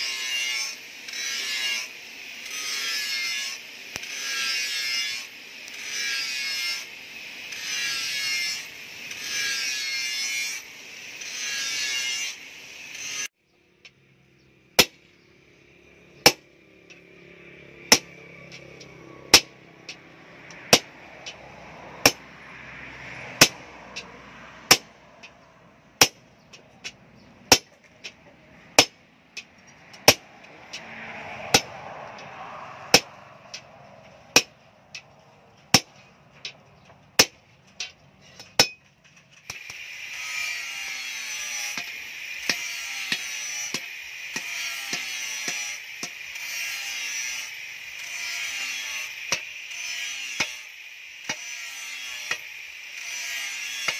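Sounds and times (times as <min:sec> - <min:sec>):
hammer striking hot steel: 0:14.8 - 0:15.1, 0:16.2 - 0:21.4, 0:22.0 - 0:22.4, 0:23.3 - 0:25.4, 0:26.0 - 0:35.1, 0:35.7 - 0:39.9, 0:40.9 - 0:53.9.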